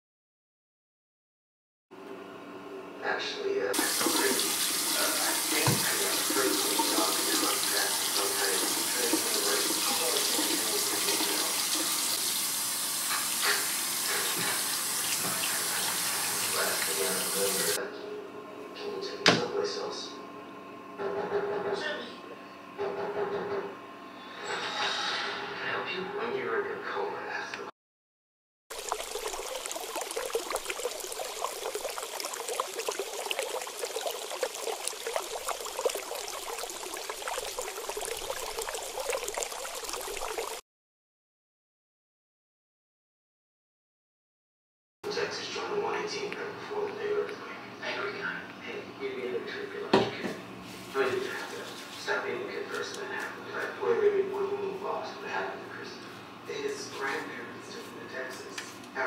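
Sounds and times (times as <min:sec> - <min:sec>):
tap water running into sink: 0:03.8 - 0:17.8, 0:28.7 - 0:40.6.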